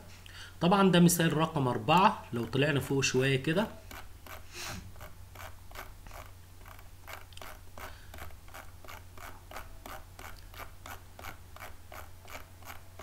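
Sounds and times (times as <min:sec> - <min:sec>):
mouse scroll wheel clicking: 0:03.9 - 0:13.0.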